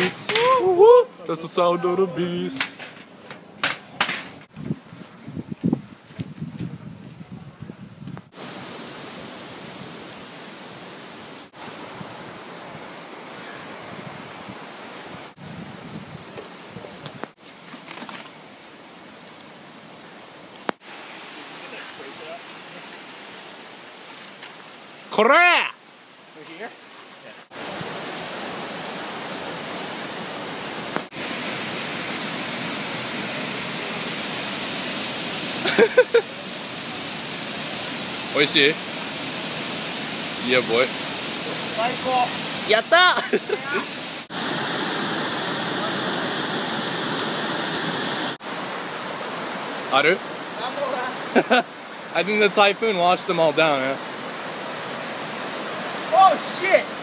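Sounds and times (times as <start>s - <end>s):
stream rushing over rocks: 0.0s - 2.7s, 8.3s - 14.0s, 19.4s - 25.7s, 26.5s - 57.0s.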